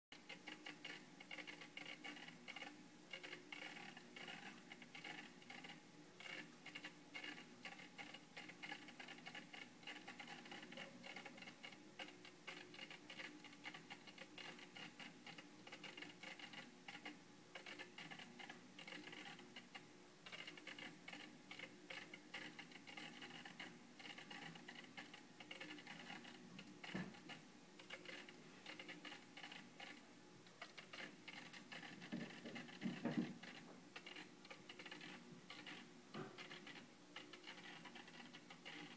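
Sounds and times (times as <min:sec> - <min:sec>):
faint ticking and pattering: 0:00.1 - 0:38.9.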